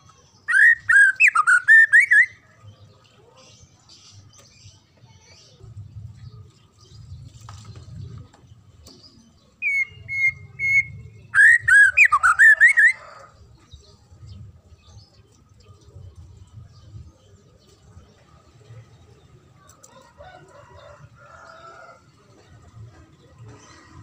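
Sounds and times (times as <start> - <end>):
bird singing whistled notes: 0.4 - 2.4, 9.6 - 12.8.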